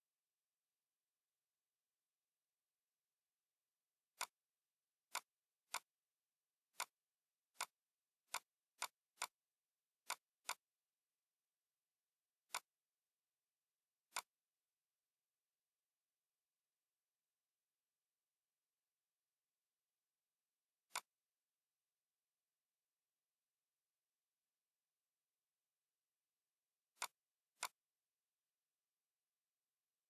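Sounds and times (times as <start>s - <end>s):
mouse button clicking: 6.7s - 9.4s, 14.1s - 14.4s, 20.9s - 21.2s, 26.9s - 27.8s.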